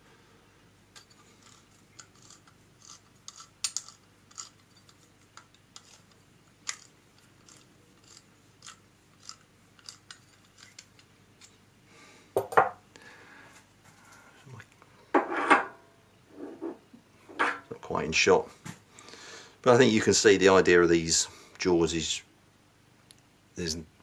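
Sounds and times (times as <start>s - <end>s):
metal parts clattering: 1.0s - 11.0s
small metallic clicks: 1.0s - 11.6s.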